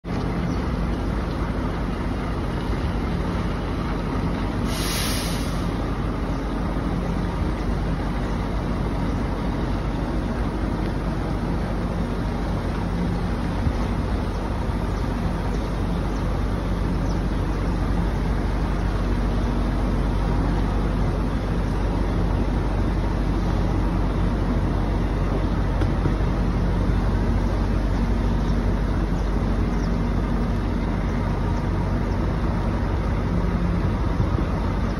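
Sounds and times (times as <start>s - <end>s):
truck diesel engine running: 0.0s - 34.9s
air hiss: 4.6s - 5.9s.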